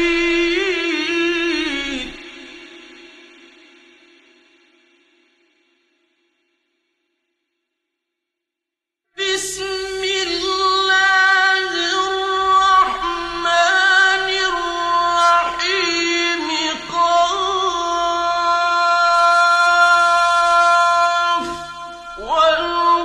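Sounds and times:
person chanting melodically: 0.0s - 3.6s, 9.2s - 23.0s.

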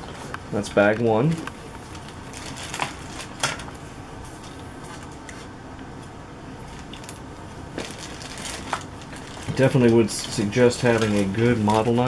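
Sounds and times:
plastic bag crinkling: 1.9s - 3.7s, 6.6s - 12.0s.

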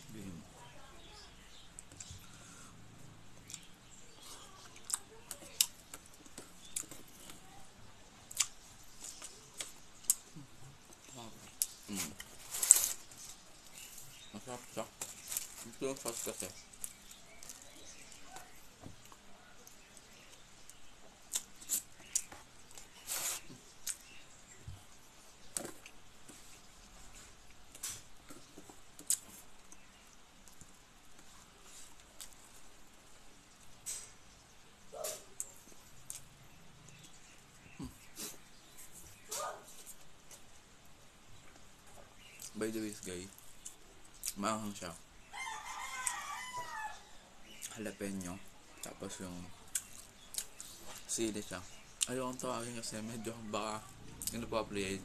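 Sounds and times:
chewing crunches: 49.6s - 51.1s.

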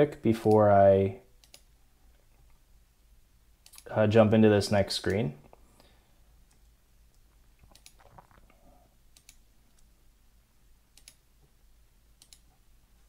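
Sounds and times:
faint computer clicks: 12.2s - 12.5s.

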